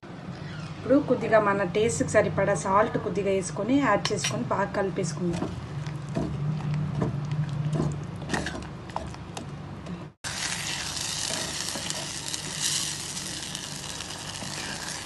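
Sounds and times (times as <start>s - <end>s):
food sizzling: 10.2s - 15.0s.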